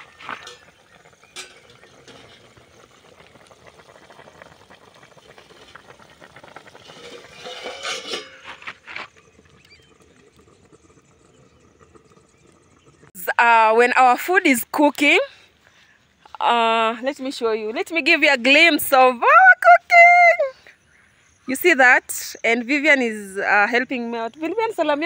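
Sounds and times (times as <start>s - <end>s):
pots and utensils knocking: 0.1s - 2.6s, 6.8s - 8.8s.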